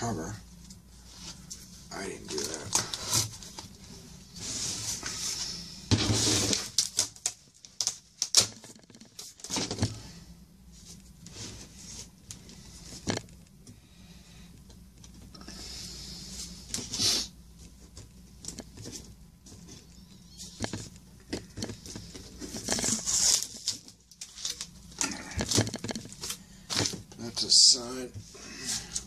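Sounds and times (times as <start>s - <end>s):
cardboard and plastic rustling: 1.0s - 10.1s, 17.6s - 29.0s.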